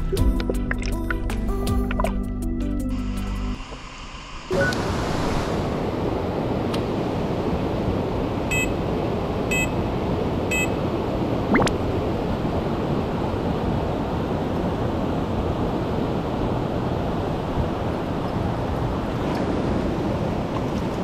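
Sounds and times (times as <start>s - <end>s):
short electronic beeps: 8.5s - 8.7s, 9.5s - 9.7s, 10.5s - 10.8s
electronic pitch sweep: 11.5s - 11.8s.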